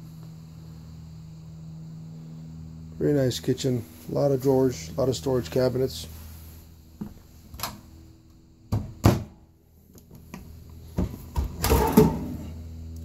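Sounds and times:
kitchen drawers opening and shutting: 11.0s - 12.5s.

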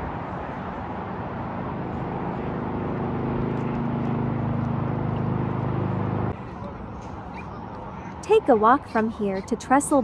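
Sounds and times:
vehicle engine hum: 0.0s - 9.5s.

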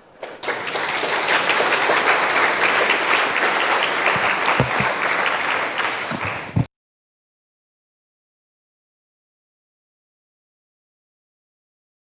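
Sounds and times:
audience applauding: 0.0s - 6.7s.

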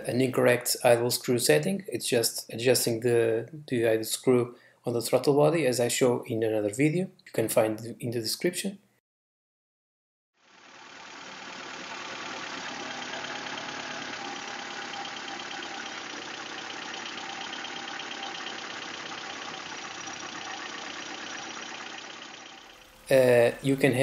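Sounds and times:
car engine idling: 10.5s - 24.0s.

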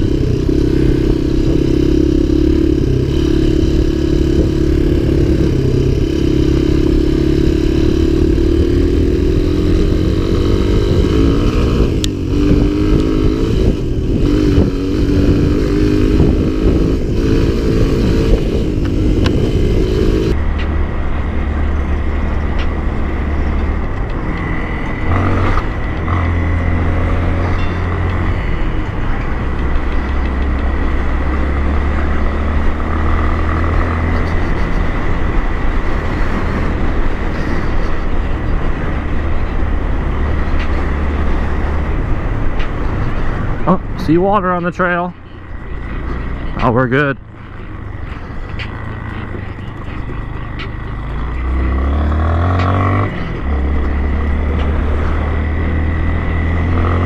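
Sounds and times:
dirt bike engine revving: 0.0s - 20.7s, 21.3s - 41.7s, 48.0s - 57.0s
dirt bike engine running steadily: 0.0s - 57.0s.

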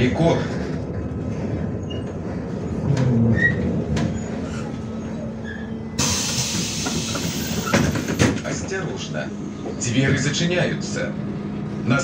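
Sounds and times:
bus diesel engine running: 2.3s - 12.0s
compressed air hiss: 6.0s - 7.5s.

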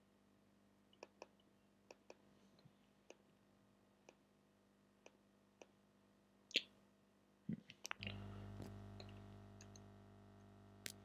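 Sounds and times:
low steady hum: 5.6s - 11.0s.

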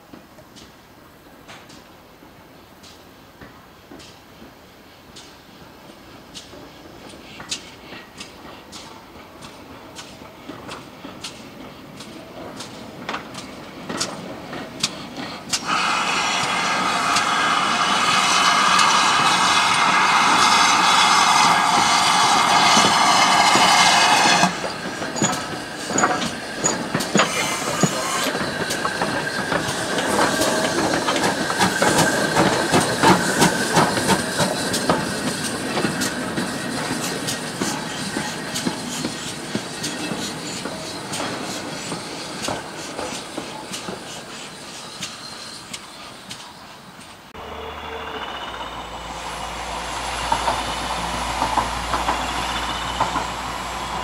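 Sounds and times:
train wheels clicking over rail joints: 1.4s - 54.0s
steam locomotive hissing: 2.2s - 54.0s
locomotive motion clanking: 8.7s - 54.0s.

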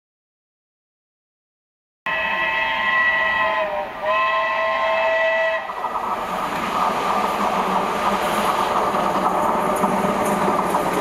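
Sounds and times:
steam locomotive whistle blasts: 2.1s - 5.8s
train running noise: 2.1s - 11.0s.

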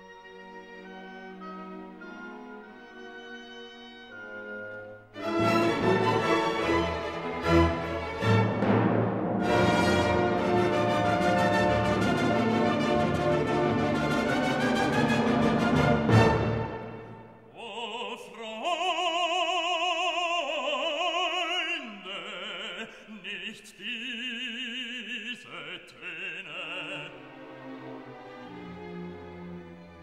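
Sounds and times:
orchestral chord: 5.2s - 17.3s
operatic singing: 17.4s - 28.3s.

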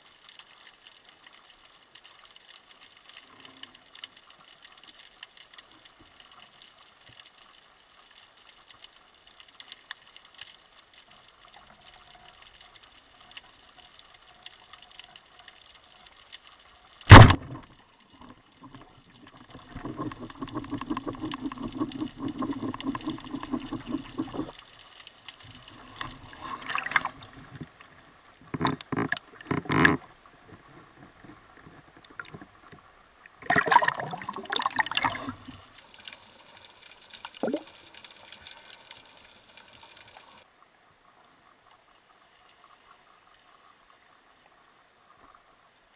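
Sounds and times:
water splashing: 17.0s - 36.0s, 37.2s - 38.8s
speargun crack: 17.1s - 17.6s
low underwater rumbling: 17.1s - 24.5s.

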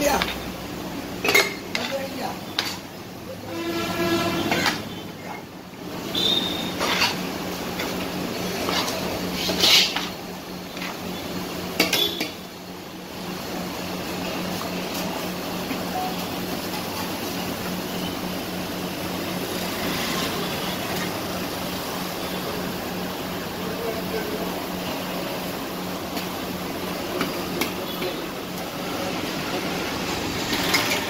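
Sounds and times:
metal dishes clinking: 1.2s - 2.0s.

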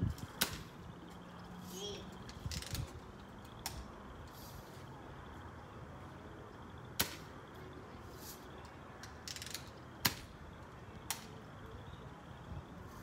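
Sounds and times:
rattle of small clicks: 2.2s - 3.8s, 9.0s - 10.2s.

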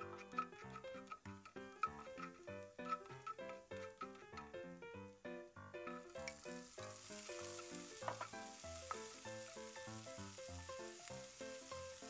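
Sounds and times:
spatula stirring in a wok: 0.0s - 4.4s, 5.9s - 12.0s
background music: 0.0s - 12.0s
vegetables sizzling in hot oil: 5.8s - 12.0s.

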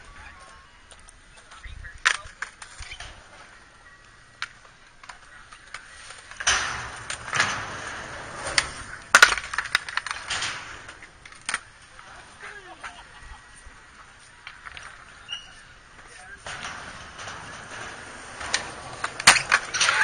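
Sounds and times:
skateboard clacking on concrete: 0.9s - 13.0s, 17.6s - 20.0s
skateboard scraping metal handrail: 4.4s - 20.0s.

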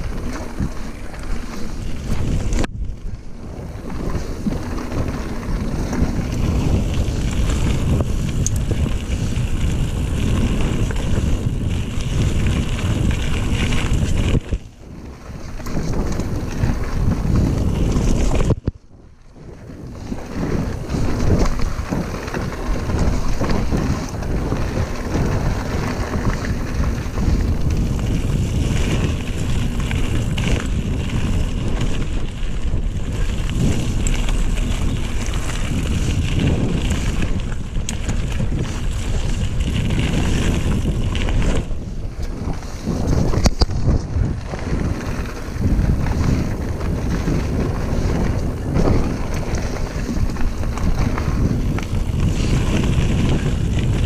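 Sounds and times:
bike tyres rolling on gravel: 0.0s - 54.0s
wind buffeting microphone: 0.0s - 54.0s.

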